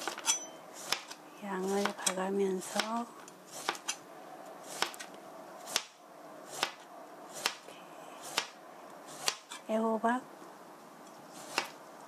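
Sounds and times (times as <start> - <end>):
knife slicing on cutting board: 11.4 - 11.8.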